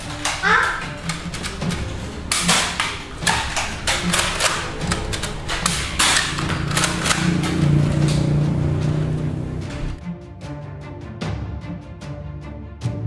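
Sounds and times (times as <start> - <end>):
foam darts clacking and thudding: 0.0 - 8.4
background music: 0.0 - 13.0.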